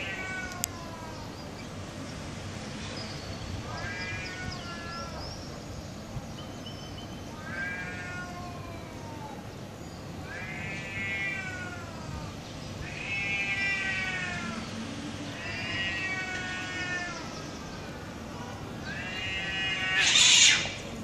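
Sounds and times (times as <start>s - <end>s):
cats yowling: 0.0s - 1.3s, 3.6s - 5.4s, 7.3s - 9.5s, 10.2s - 17.6s, 18.6s - 21.0s.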